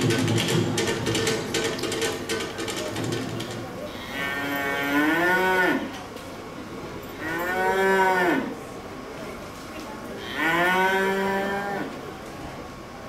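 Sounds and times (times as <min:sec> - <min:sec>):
cow mooing: 0:03.9 - 0:05.9, 0:10.2 - 0:11.9.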